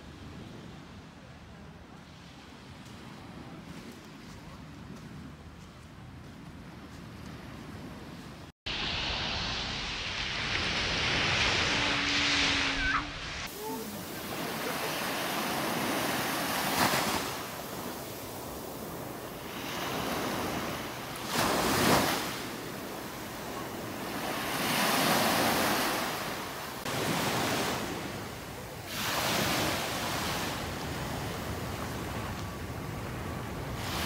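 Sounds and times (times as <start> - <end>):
sea waves breaking on beach: 8.7 - 34.0.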